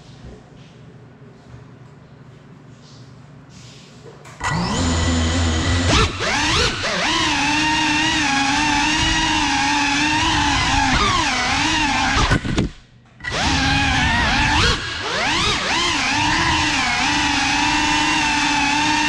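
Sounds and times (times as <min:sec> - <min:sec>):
drone motors whining: 0:04.4 - 0:19.0.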